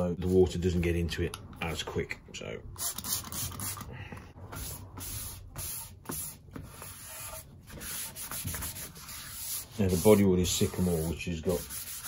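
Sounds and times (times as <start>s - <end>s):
damp paper towel rubbing on wood: 5.0s - 12.0s.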